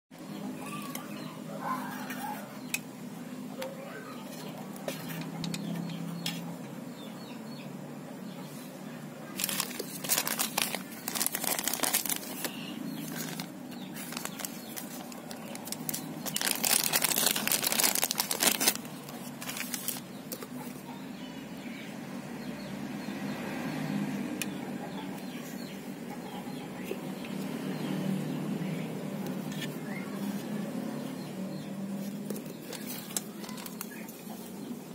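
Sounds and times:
plastic bag crinkling: 9.4 - 20.1, 32.2 - 34.0.

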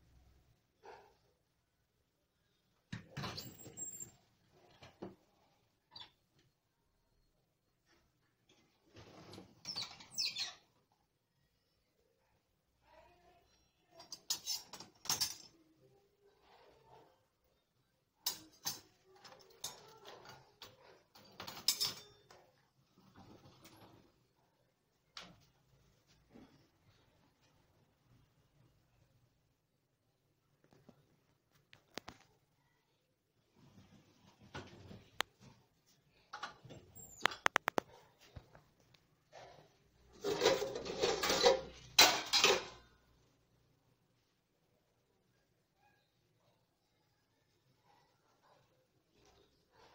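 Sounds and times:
utensils and dish racks clinking: 14.0 - 15.6, 18.2 - 22.6, 40.1 - 42.9.

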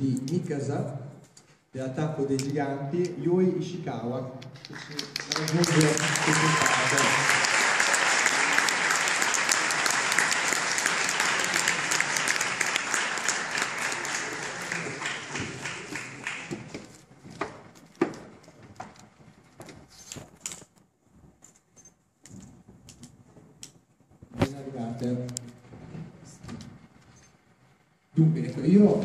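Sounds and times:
audience applause: 4.6 - 17.0.

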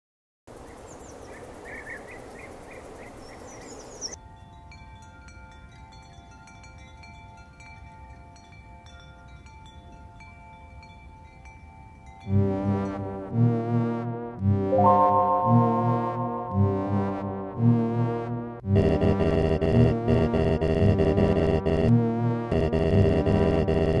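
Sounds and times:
soft chimes ringing: 4.2 - 13.0.

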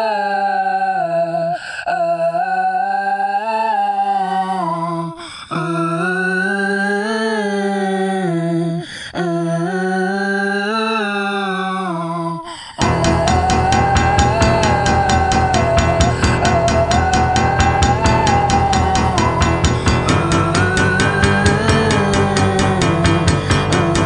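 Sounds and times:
wordless humming tone: 12.8 - 24.0.

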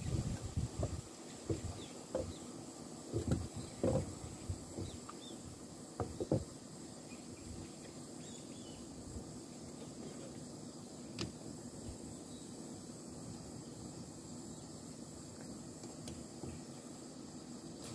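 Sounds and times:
wooden table frame knocking: 3.1 - 4.1, 6.0 - 6.5.

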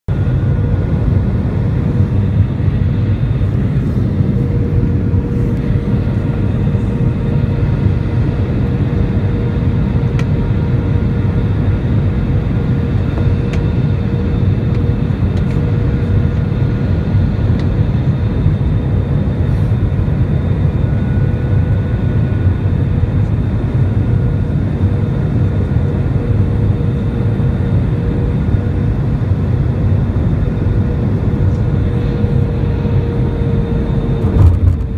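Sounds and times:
jet engine rumble: 0.1 - 34.9.

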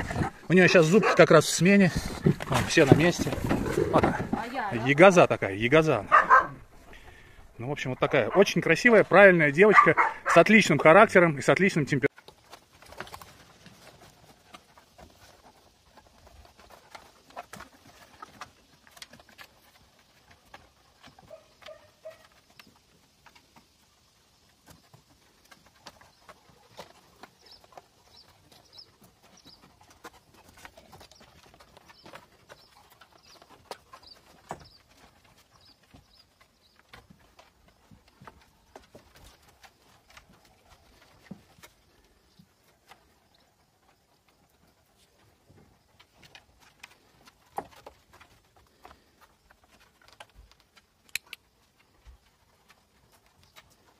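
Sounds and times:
paws clicking on wooden boards: 0.0 - 7.3, 8.0 - 53.9
bird chirping: 27.2 - 37.2.

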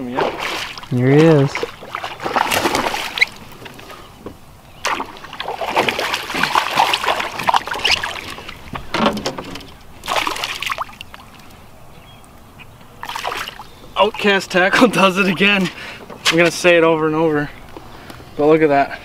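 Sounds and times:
fish splashing in water: 0.0 - 4.1, 4.8 - 8.7, 9.7 - 11.6, 13.0 - 13.7.

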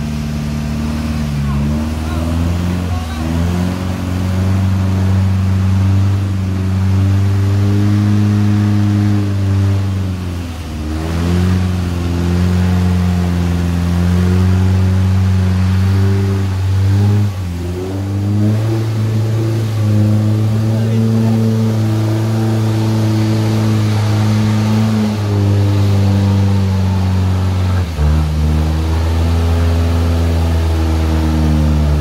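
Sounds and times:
vehicle engine running: 0.0 - 32.0.

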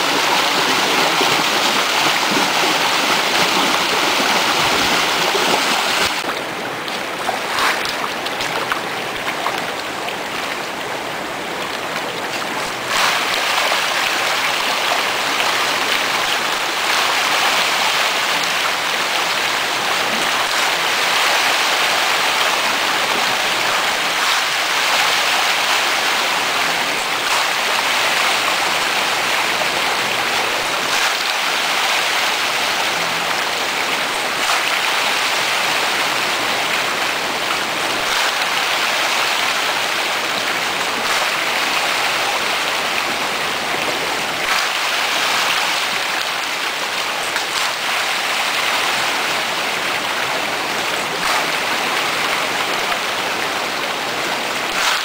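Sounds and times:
sharp splash: 0.0 - 9.7, 12.3 - 15.2, 23.3 - 28.5, 30.8 - 32.6, 34.3 - 36.0, 38.0 - 39.9, 40.8 - 43.0, 44.4 - 46.4, 51.2 - 51.8, 54.7 - 55.0
fish splashing at water surface: 0.0 - 9.9, 12.4 - 14.8, 30.9 - 31.8, 41.0 - 42.0, 54.7 - 55.0.

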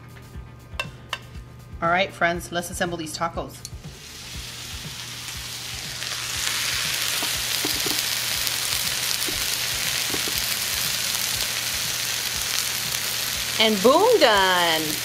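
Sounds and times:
fajitas sizzling on a skillet: 3.9 - 15.0.

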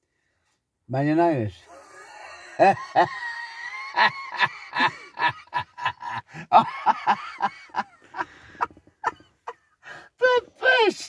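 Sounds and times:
man laughing hard: 1.7 - 9.6.

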